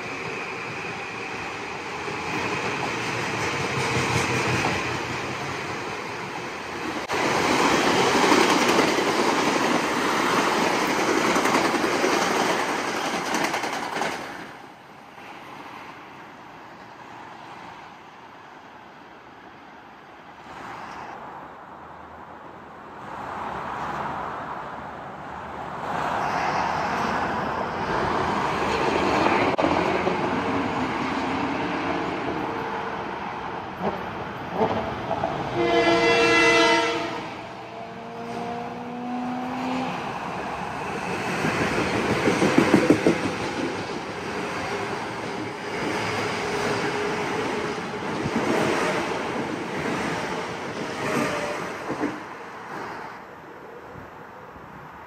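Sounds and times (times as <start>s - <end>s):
train rumbling on rails: 0.0s - 19.5s, 22.8s - 55.0s
train wheel clatter: 7.0s - 14.6s, 41.0s - 52.9s
train horn chord: 35.6s - 37.4s.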